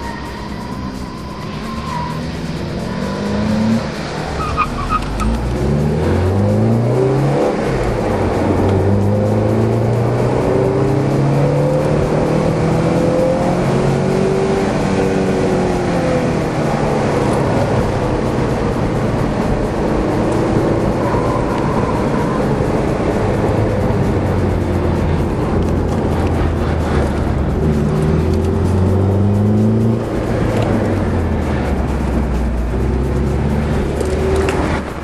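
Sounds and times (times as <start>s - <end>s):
tyre squeal: 0.0s - 5.4s, 20.8s - 22.9s
car engine accelerating: 0.0s - 35.0s.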